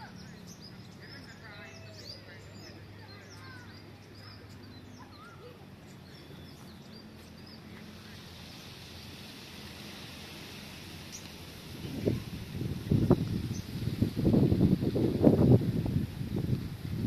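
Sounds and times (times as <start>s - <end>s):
small birds chirping: 0.0s - 17.0s
steady low hum: 0.0s - 17.0s
high even hiss: 5.2s - 17.0s.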